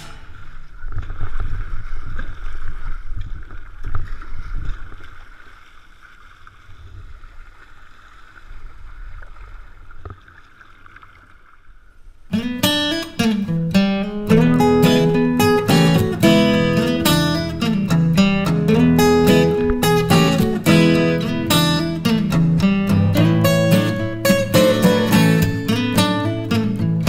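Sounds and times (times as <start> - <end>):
wind rumble on microphone: 0.0 - 5.5
water washing along kayak hull: 0.0 - 12.3, 14.1 - 26.5
paddle blades splashing: 0.0 - 27.0.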